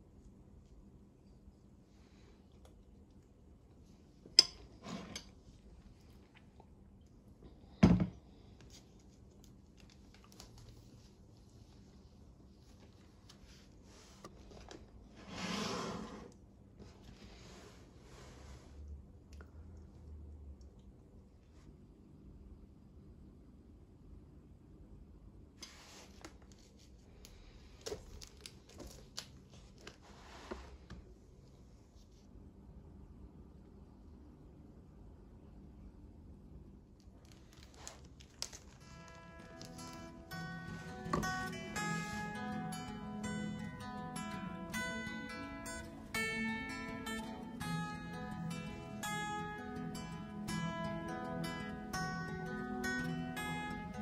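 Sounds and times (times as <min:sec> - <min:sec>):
fork scraping plate: 0:04.7 - 0:05.3
paper pages rustling: 0:25.7 - 0:30.8, 0:37.2 - 0:42.5.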